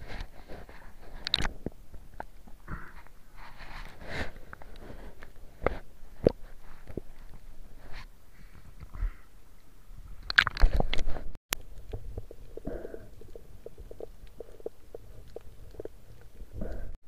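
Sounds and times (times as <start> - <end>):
muffled underwater clicks and pops: 1.2 - 2.3, 10.2 - 12.6
water splashing against camera: 10.2 - 16.9.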